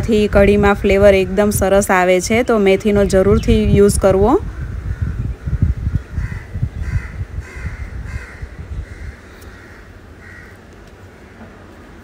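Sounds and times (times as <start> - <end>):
crows cawing: 6.0 - 11.6.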